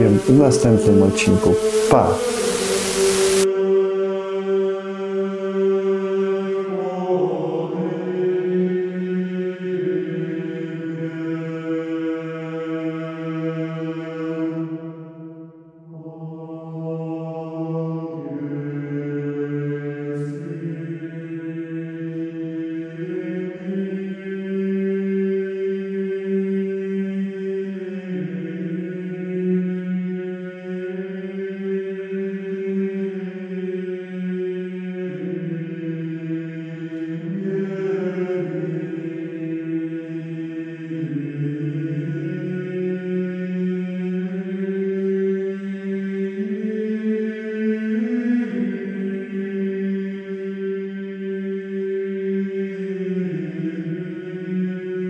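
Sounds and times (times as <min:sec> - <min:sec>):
voices chanting sustained notes: 0:00.0 - 0:11.1.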